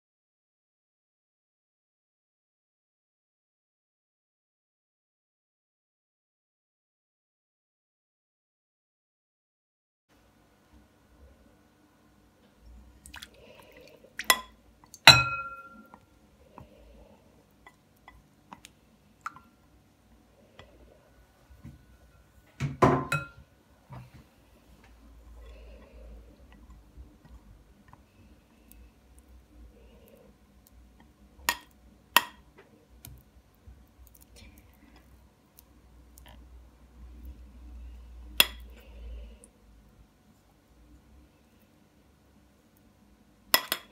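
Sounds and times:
glass bowls clinking: 14.3 - 16.0, 23.0 - 23.4
glass clinking on glass: 15.1 - 15.9.

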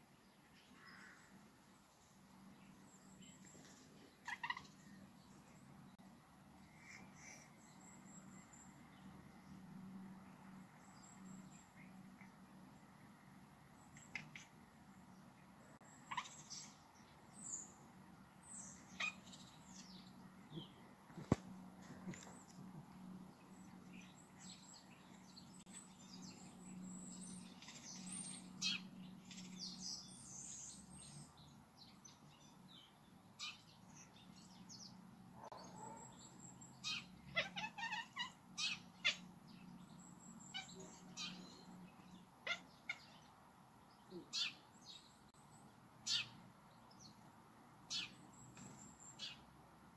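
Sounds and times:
cat chattering high chirps: 16.0 - 16.7, 18.8 - 19.5, 36.8 - 39.2.

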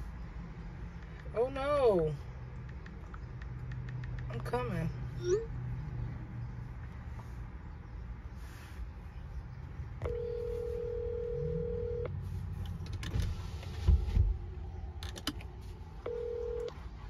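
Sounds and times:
phone ringback tone: 10.0 - 12.1, 16.0 - 16.7.

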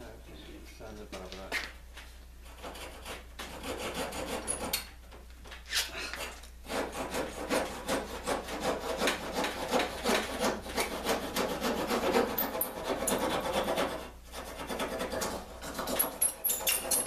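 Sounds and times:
hand file rasping on wood: 2.5 - 4.7, 6.2 - 16.1.

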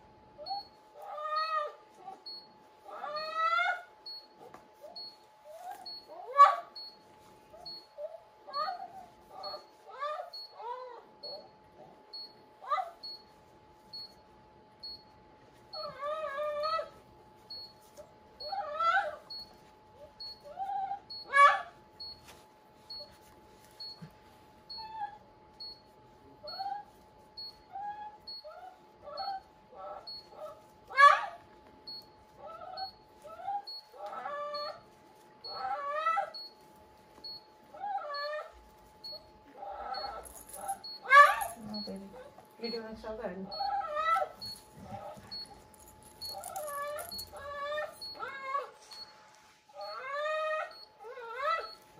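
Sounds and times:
dog whimpering and whining: 0.4 - 13.2, 15.6 - 36.6, 37.2 - 42.4, 43.5 - 51.9.

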